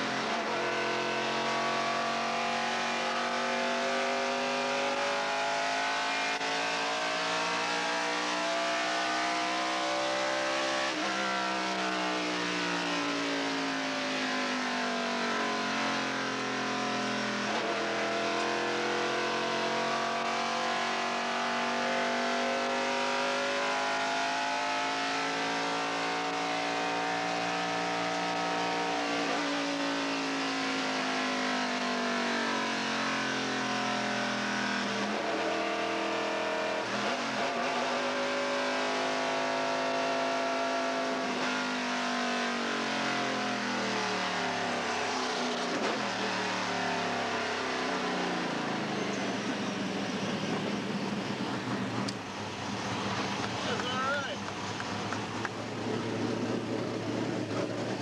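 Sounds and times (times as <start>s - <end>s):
racing truck engine: 0.0s - 58.0s
wind and road noise: 47.5s - 58.0s.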